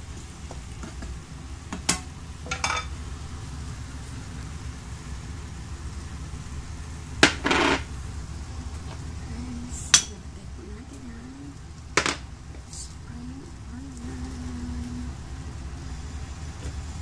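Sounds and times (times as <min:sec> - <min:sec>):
low hum: 0:01.4 - 0:17.0
kitchenware clinking on frying pan: 0:02.5 - 0:02.9.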